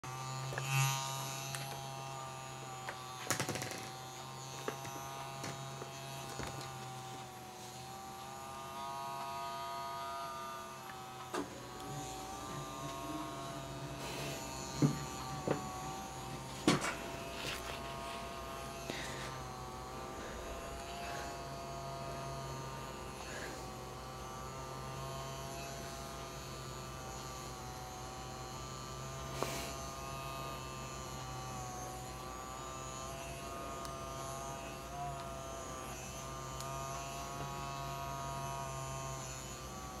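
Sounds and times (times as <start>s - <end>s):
massage device humming: 0.0s - 40.0s.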